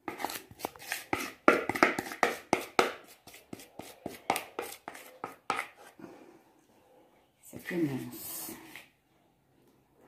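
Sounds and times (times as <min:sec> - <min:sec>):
spoon scraping mixing bowl: 0:00.0 - 0:06.0.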